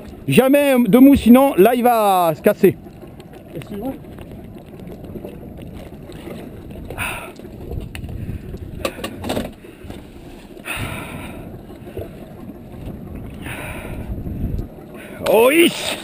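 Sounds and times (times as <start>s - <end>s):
water swishes: 0.0s - 16.0s
water washing against boat hull: 0.0s - 16.0s
wind on microphone: 3.6s - 15.3s.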